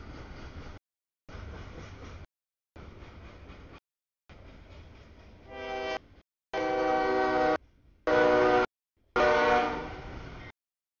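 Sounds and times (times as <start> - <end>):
freight train rumble: 0.0 - 10.6
locomotive air horn blasts: 5.5 - 10.1.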